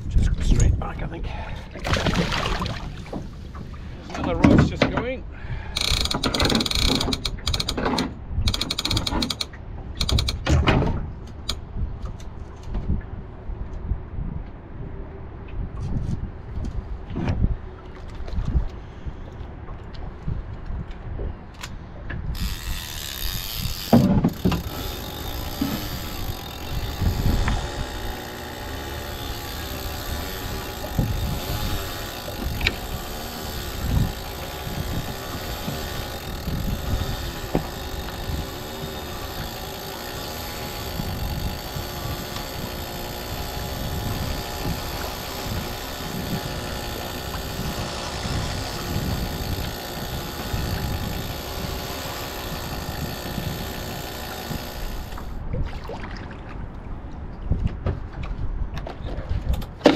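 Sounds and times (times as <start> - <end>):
wind buffeting microphone: 0.0 - 6.2, 12.7 - 59.9
fishing reel winding: 5.6 - 7.8, 8.4 - 10.4, 22.4 - 55.4.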